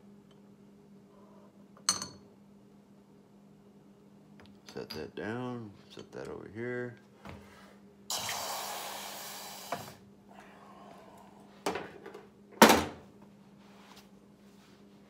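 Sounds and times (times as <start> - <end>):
hot metal hissing in water: 8.1 - 10.0.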